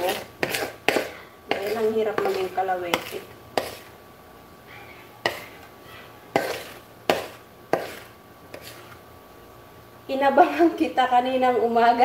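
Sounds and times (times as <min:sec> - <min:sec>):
spoon scraping batter from bowl: 0:00.0 - 0:04.0, 0:05.2 - 0:09.0.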